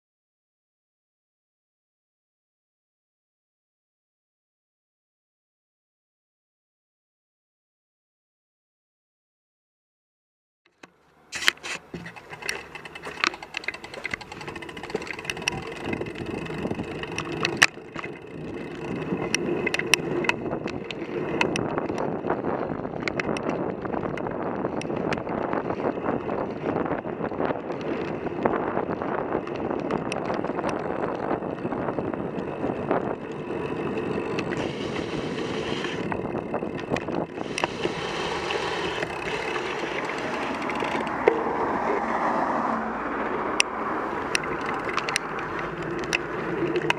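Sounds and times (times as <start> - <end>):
wind: 10.7 - 46.9
tyre and road rumble: 10.8 - 46.9
bike knocks and rattles: 11.4 - 34.4.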